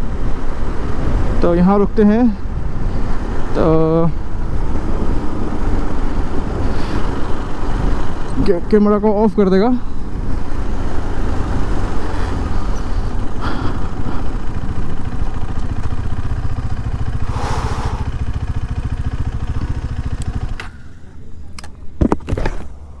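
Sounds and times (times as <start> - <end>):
motorcycle engine running: 9.7 - 22.0.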